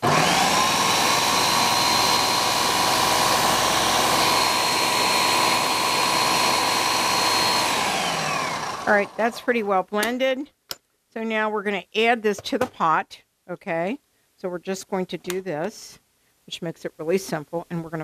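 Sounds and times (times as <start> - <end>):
blender running: 0.0 - 9.4.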